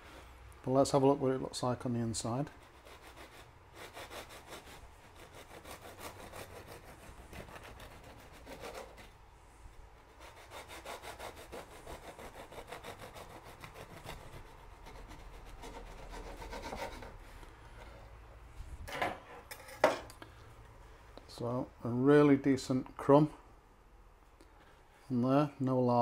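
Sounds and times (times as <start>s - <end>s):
bread knife sawing through bread: 2.5s - 9.1s, 10.1s - 17.2s.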